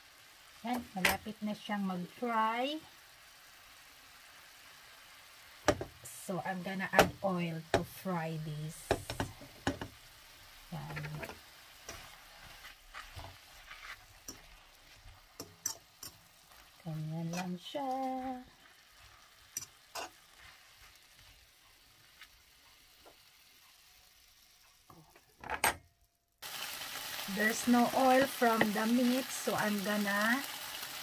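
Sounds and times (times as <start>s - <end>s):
sausages sizzling in frying pan: 0.0s - 25.3s, 26.4s - 31.0s
utensil clicking against pan: 15.4s - 16.2s.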